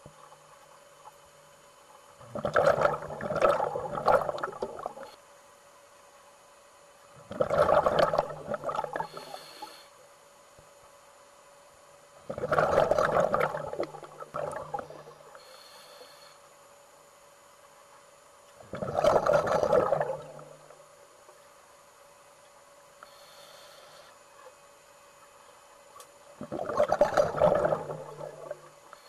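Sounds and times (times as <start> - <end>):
water bubbling underwater: 2.2 - 5.1, 7.2 - 9.2, 12.3 - 15.3, 18.6 - 20.8, 26.4 - 28.8.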